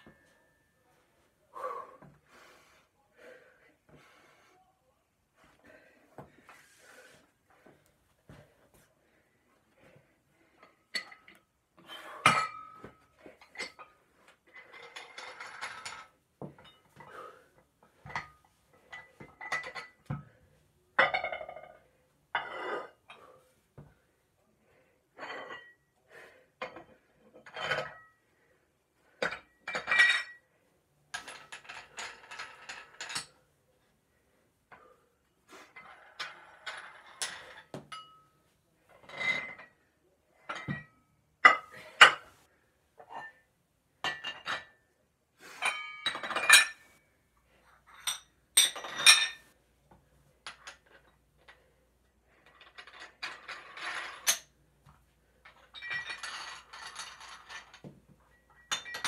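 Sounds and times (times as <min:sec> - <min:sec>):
metal objects clinking: 0:55.4 - 0:59.0.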